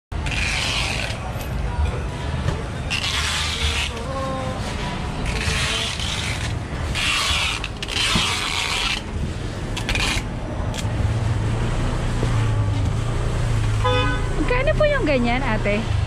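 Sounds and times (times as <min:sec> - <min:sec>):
vehicle engine hum: 0:00.1 - 0:16.0
packing tape scraping on boxes: 0:00.2 - 0:01.4, 0:02.9 - 0:09.2, 0:09.8 - 0:11.0.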